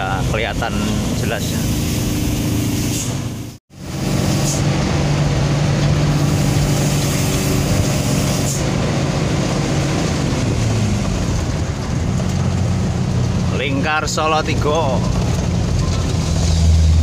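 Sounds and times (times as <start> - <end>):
road noise: 0.0 - 17.0
truck diesel engine running: 0.0 - 17.0.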